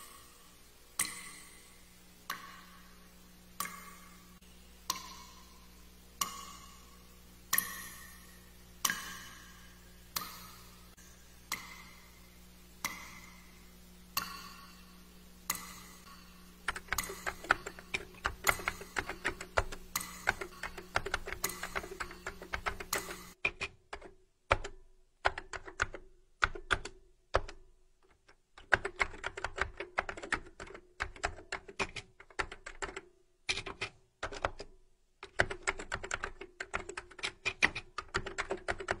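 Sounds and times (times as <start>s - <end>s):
slow ticking: 0.9s - 23.4s
typing keystrokes: 15.5s - 27.7s, 28.6s - 39.0s.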